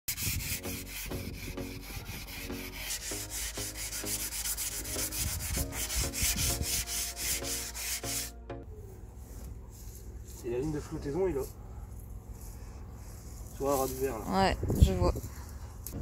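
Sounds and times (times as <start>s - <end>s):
hand sanding strokes: 0.1s - 8.3s, 12.3s - 14.2s
sanding squeak: 0.1s - 8.3s.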